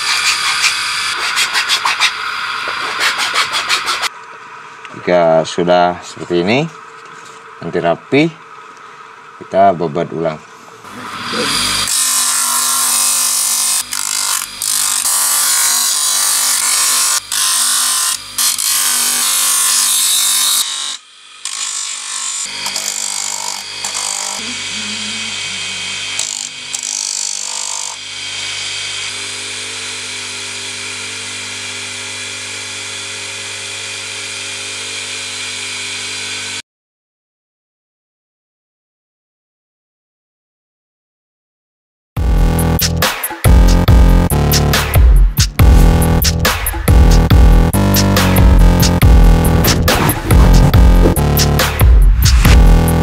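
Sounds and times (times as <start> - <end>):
disc sander grinding wood: 0.0 - 36.6, 47.6 - 52.8
steady hum: 45.2 - 53.0.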